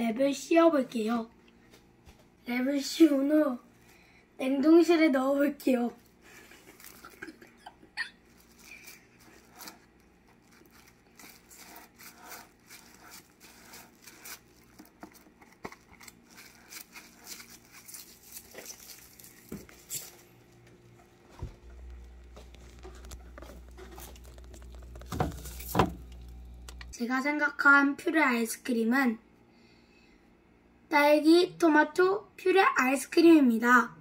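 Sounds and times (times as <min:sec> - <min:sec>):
low steady hum: 0:00.0 - 0:32.4
plastic cling wrap crinkling: 0:06.3 - 0:20.6, 0:21.7 - 0:27.0.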